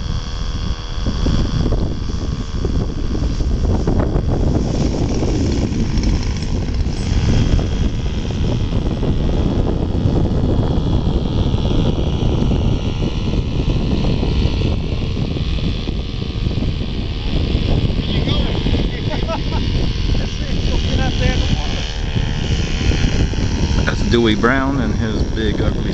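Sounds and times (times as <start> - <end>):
model airplane engine running: 0.0 - 25.9.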